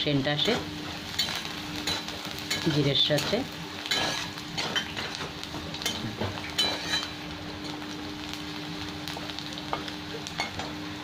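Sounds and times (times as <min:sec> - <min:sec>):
onion sizzling in hot oil: 0:00.0 - 0:11.0
metal spatula scraping pan: 0:06.6 - 0:07.1.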